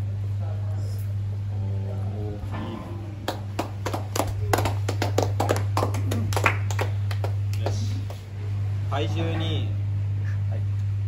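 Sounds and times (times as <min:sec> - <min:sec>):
steady low hum: 0:00.0 - 0:11.0
people clapping: 0:03.2 - 0:08.4.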